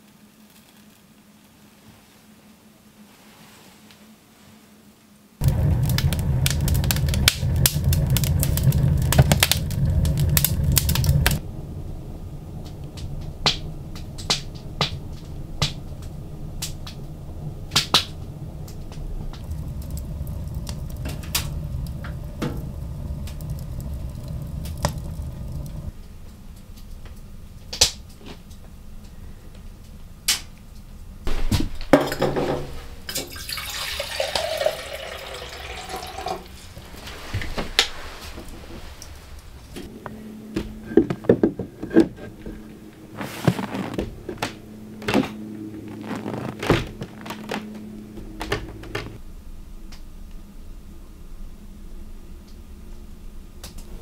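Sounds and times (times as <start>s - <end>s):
low rumble: 5.4s - 32.0s, 34.4s - 54.0s
wood fire crackling and popping: 5.4s - 32.1s, 33.1s - 39.9s, 41.0s - 49.2s
water poured into a steel mug: 33.1s - 36.6s.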